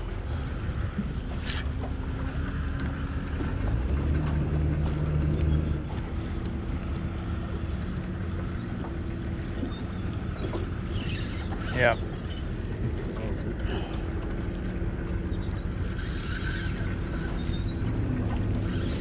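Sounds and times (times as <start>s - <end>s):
boat motor running: 0.0s - 19.0s.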